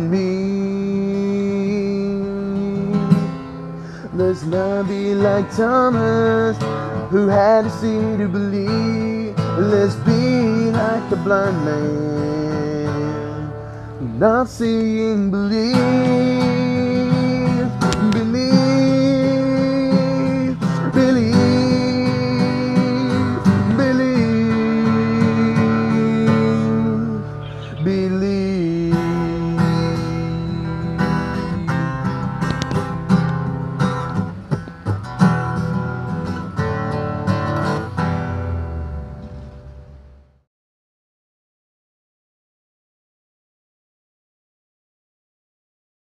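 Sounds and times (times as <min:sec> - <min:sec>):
acoustic guitar strummed: 0:00.0 - 0:40.4.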